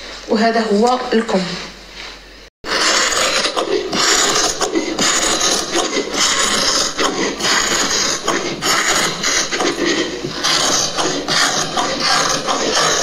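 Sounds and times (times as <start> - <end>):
shears cutting fabric: 2.6 - 13.0.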